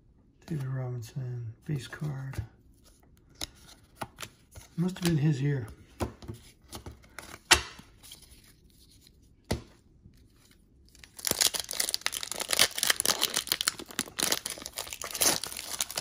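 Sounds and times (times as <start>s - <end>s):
card pack wrapper tearing and crinkling: 10.2s - 16.0s.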